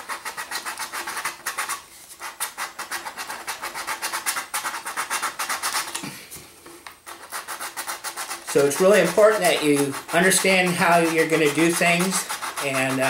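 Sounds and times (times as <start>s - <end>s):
sandpaper scraping plastic: 0.0s - 13.0s.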